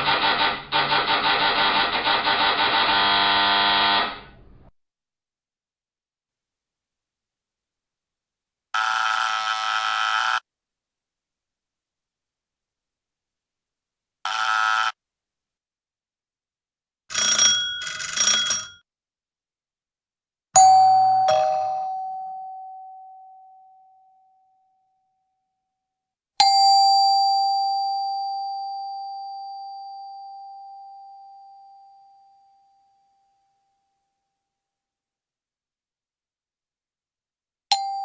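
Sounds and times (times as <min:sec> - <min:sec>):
doorbell buzzer: 0:02.5 - 0:04.3, 0:08.8 - 0:10.4, 0:14.3 - 0:15.0, 0:17.1 - 0:18.8
doorbell rings: 0:17.1 - 0:18.8, 0:20.6 - 0:24.4
two-note ding-dong chime: 0:20.6 - 0:24.2, 0:26.4 - 0:33.0, 0:37.8 - 0:38.0.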